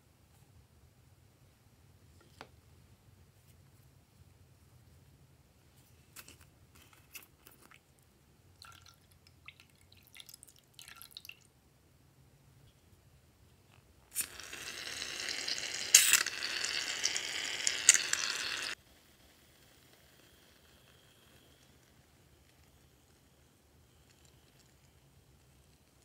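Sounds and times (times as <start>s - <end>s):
slime squelching and dripping: 7.1s - 11.5s, 14.2s - 17.2s
aerosol foam spraying hiss: 15.9s - 16.8s.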